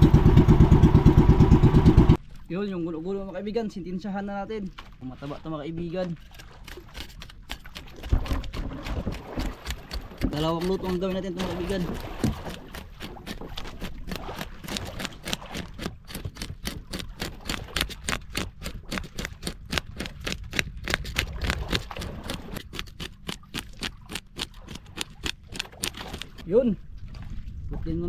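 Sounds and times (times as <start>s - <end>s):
steady low rumble: 0.0s - 3.1s
knife scraping fish: 6.2s - 26.4s.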